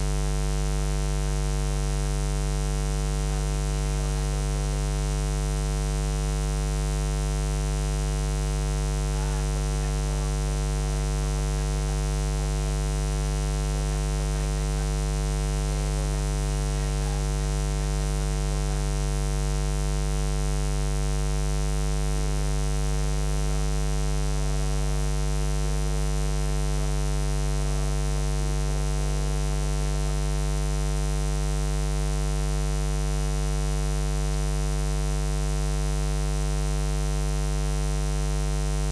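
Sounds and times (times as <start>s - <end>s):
electrical mains hum: 0.0s - 25.0s.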